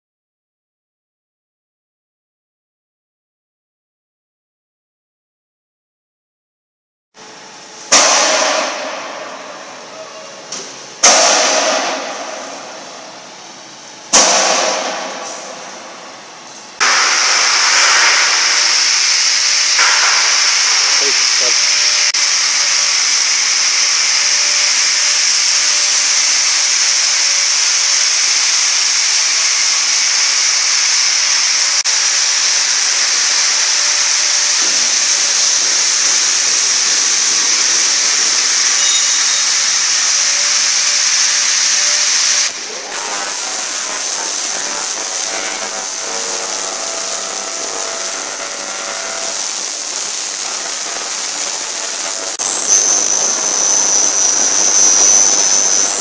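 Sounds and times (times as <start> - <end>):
ultrasonic cleaner hissing: 16.7 - 56.0.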